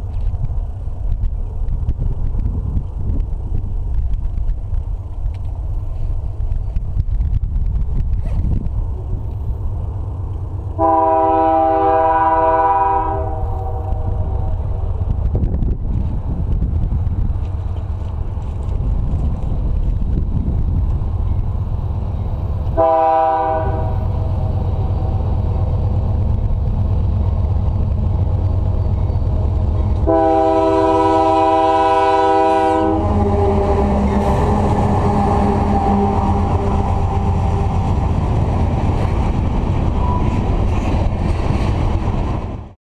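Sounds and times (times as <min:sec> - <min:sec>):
train rumbling: 0:00.0 - 0:42.8
train wheels on rails: 0:00.0 - 0:42.8
locomotive air horn: 0:10.8 - 0:14.4, 0:22.7 - 0:24.2, 0:30.0 - 0:37.4.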